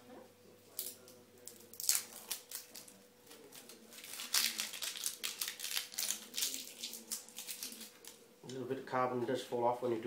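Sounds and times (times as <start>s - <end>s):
plastic wrapping crinkling: 0.7s - 8.3s.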